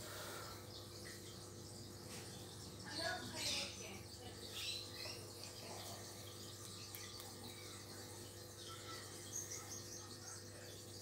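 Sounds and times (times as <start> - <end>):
aquarium pumps humming: 0.0 - 11.0
faint high chirps: 4.4 - 11.0.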